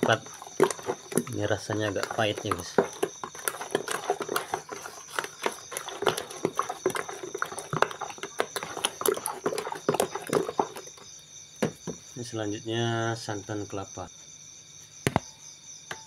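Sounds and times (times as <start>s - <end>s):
metal spoon stirring thick mixture: 0.0s - 12.0s
spoon knocking and scraping basin: 0.0s - 12.1s.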